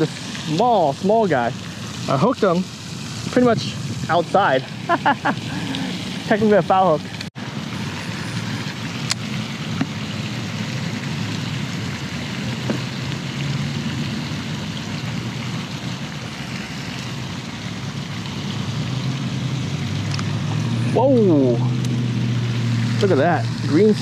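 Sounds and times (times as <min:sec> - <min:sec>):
low outdoor rumble: 0:00.0 - 0:24.0.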